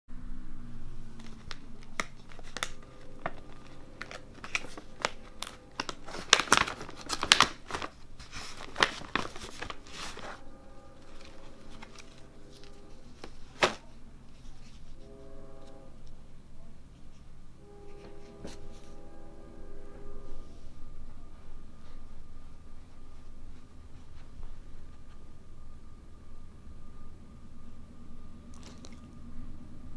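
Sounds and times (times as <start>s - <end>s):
sharp plastic crackle: 1.1s - 14.0s
plastic pouch crinkling: 1.2s - 10.4s, 11.0s - 14.8s.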